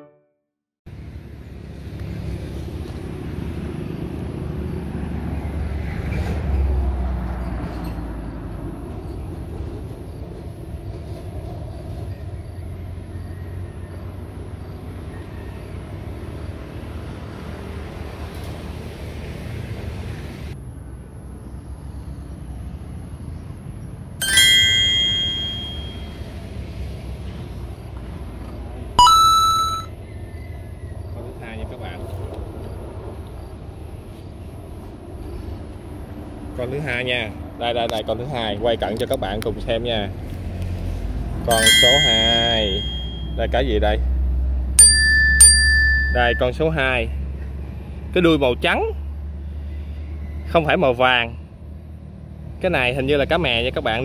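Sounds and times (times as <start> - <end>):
bright ringing chime tones: 24.2 - 26.2, 29.0 - 29.9, 41.5 - 43.4, 44.8 - 46.5.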